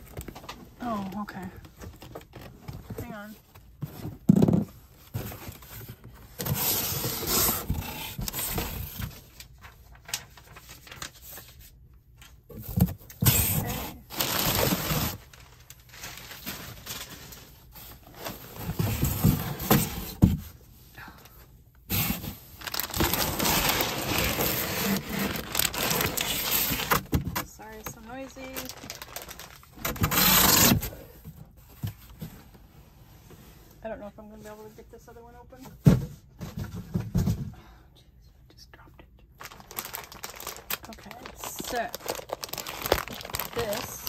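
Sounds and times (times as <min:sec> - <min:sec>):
packaging scraping and rustling: 0:01.8 - 0:11.6, 0:12.6 - 0:20.3, 0:21.9 - 0:31.1, 0:39.4 - 0:44.0.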